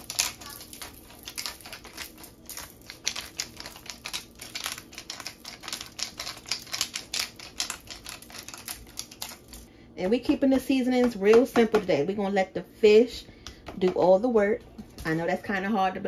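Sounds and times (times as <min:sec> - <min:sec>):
pepper grinder clicking: 0:00.0 - 0:09.6.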